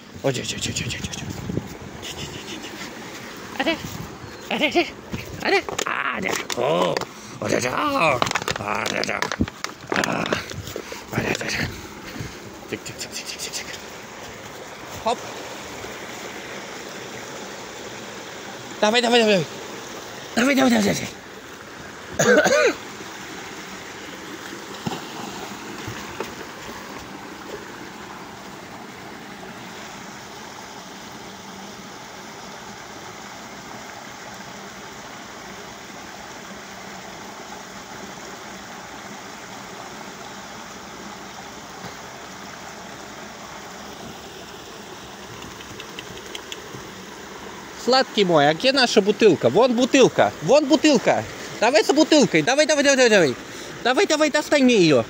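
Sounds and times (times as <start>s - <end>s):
stream water running: 0.0s - 55.0s
man calling out: 3.5s - 10.5s, 12.6s - 13.9s, 20.4s - 21.2s, 47.8s - 55.0s.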